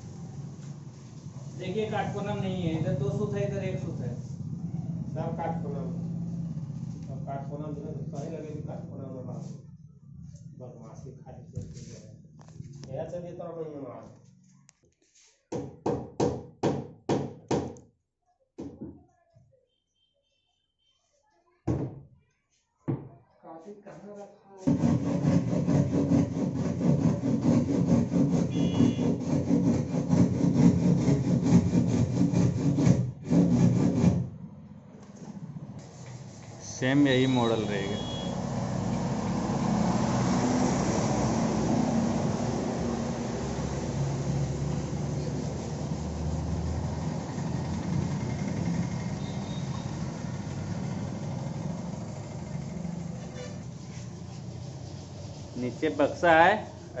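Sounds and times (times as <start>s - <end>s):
hand saw cutting wood: 24.7s - 34.3s.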